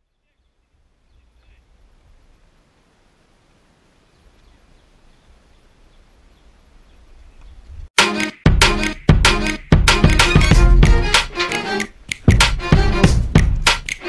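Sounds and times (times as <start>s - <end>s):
faint bird chirps: 0.0s - 1.7s, 4.0s - 7.7s.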